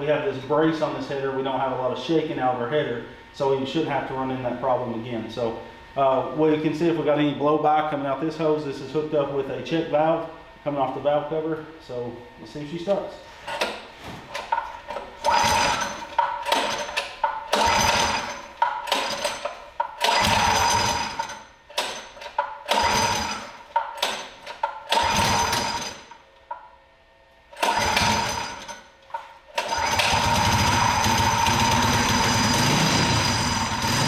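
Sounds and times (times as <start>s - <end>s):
engine pull-start cranking: 13.4s - 26.2s, 27.6s - 34.0s
engine running steadily: 29.7s - 34.0s.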